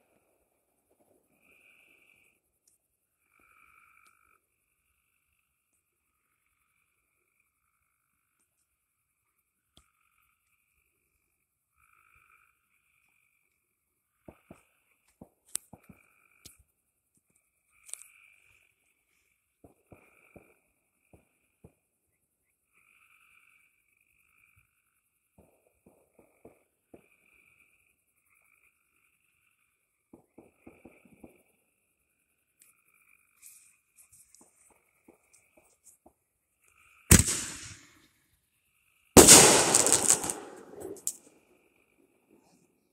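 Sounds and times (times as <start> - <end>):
faint frog calls: 0.0 - 37.2
faint pops and crackles: 14.2 - 18.7, 19.6 - 21.9, 24.6 - 28.4, 29.4 - 31.6, 32.5 - 37.9, 39.2 - 41.2.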